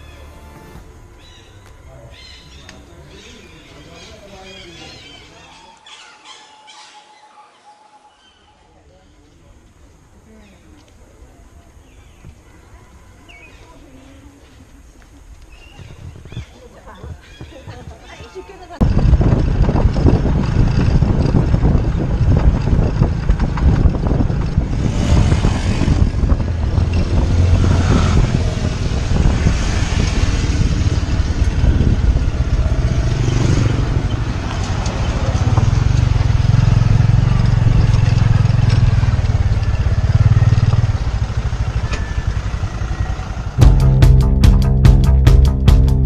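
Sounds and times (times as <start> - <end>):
wind and road noise: 0.0 - 6.4, 8.7 - 46.0
motorcycle engine running: 18.8 - 46.0.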